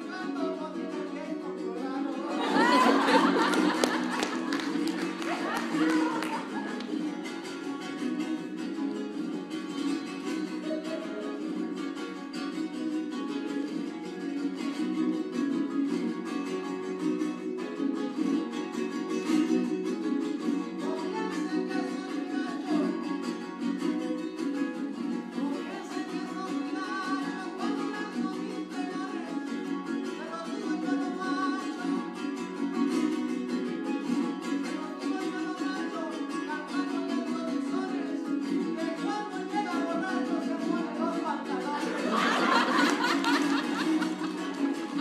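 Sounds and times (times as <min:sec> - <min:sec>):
audience cheering and clapping: 0:02.2 - 0:07.3, 0:42.0 - 0:45.0.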